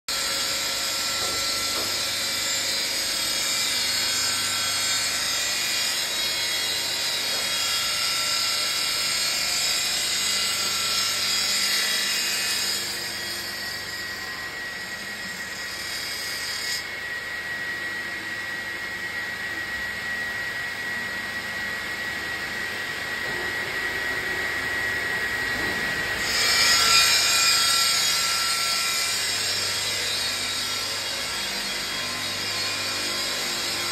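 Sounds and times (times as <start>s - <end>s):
stone grinding machine: 0.1s - 17.6s, 24.8s - 33.9s.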